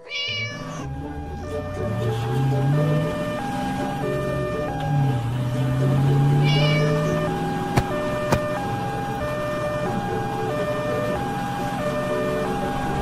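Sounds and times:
two-tone emergency siren: 0.0 - 13.0.

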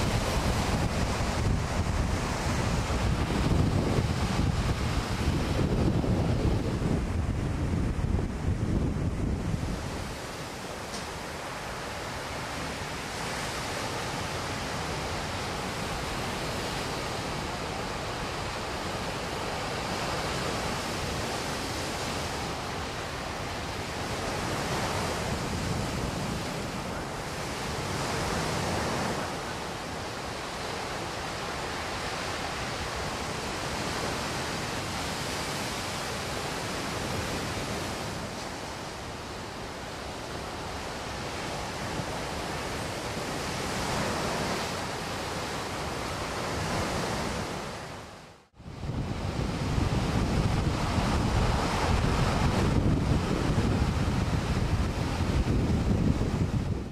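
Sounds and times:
ocean waves breaking: 0.0 - 56.9.

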